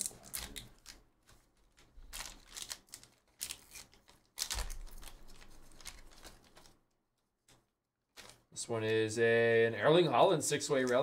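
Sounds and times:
foil pack tearing and crinkling: 2.0s - 6.8s.

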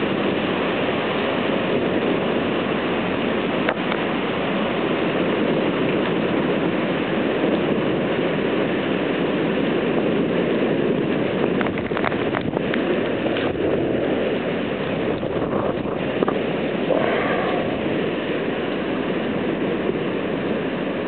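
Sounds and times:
heavy rain hissing: 12.8s - 21.0s.

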